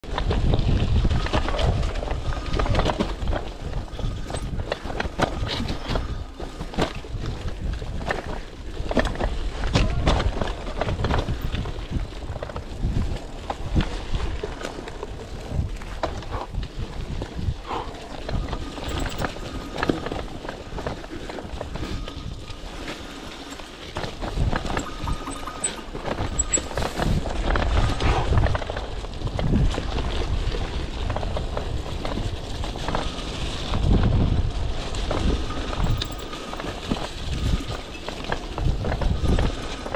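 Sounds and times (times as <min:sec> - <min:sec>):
bike rattling over bumps: 0:00.0 - 0:39.9
tyre and wind rumble: 0:00.0 - 0:39.9
bike frame rattling and knocking: 0:18.3 - 0:27.9.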